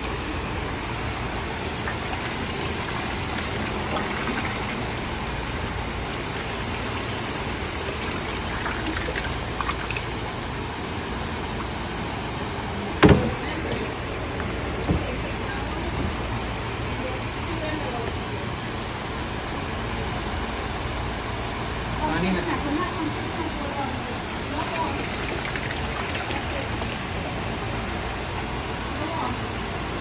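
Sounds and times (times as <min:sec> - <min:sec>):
liquid splashing into water: 0:00.9 - 0:10.8, 0:24.5 - 0:27.4, 0:29.2 - 0:30.0.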